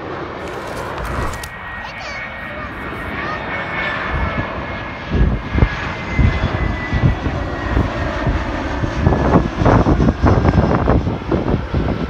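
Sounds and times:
jet airliner engine rush: 0:00.0 - 0:12.0.

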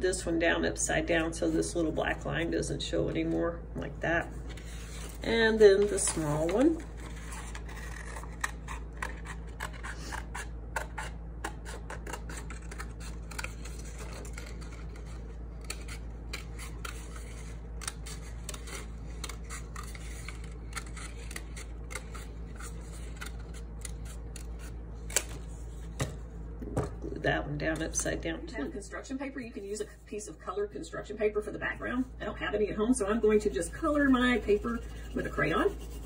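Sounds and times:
scissors snipping paper: 0:05.8 - 0:25.4.

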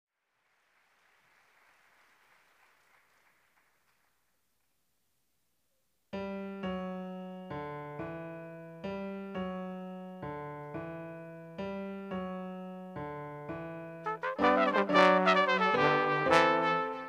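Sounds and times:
piano playing repeated chord: 0:06.2 - 0:17.0
trombone: 0:14.0 - 0:17.0
trumpet: 0:14.0 - 0:17.0.

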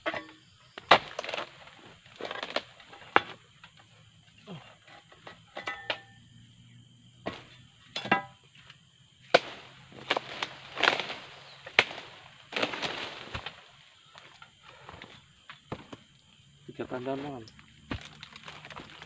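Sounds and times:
crunching of fibrous fronds: 0:00.7 - 0:03.5, 0:08.7 - 0:16.1, 0:16.7 - 0:19.0.

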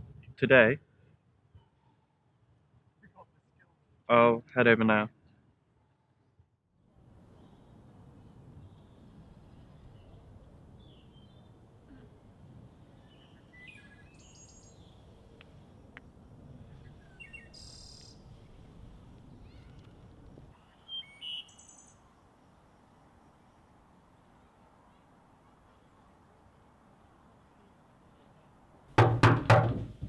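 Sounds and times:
birds chirping: 0:12.8 - 0:15.4, 0:16.6 - 0:18.6, 0:19.2 - 0:22.1.

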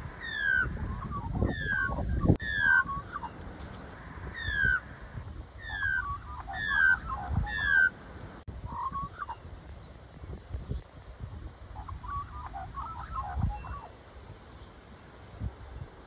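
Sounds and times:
magpie calling: 0:00.0 - 0:03.4, 0:04.0 - 0:08.0, 0:11.8 - 0:14.0.

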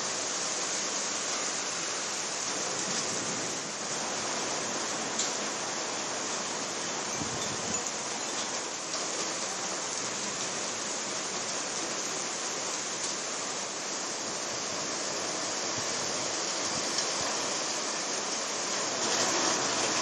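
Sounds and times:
heavy rain falling: 0:00.0 - 0:20.0.

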